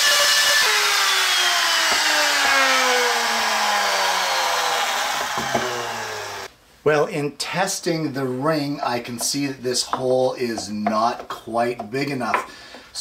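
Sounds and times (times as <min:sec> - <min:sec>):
router motor whine spinning down: 0:00.0 - 0:06.5.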